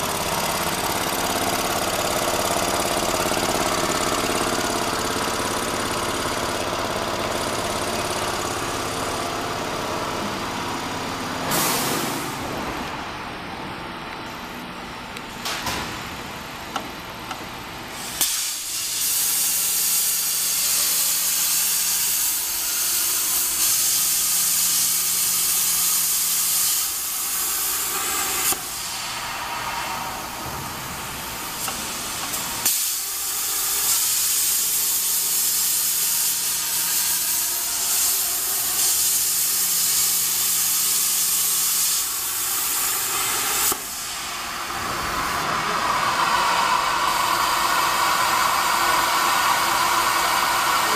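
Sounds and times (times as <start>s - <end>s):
plasma torch arc hissing: 18.0s - 29.2s, 31.4s - 45.4s.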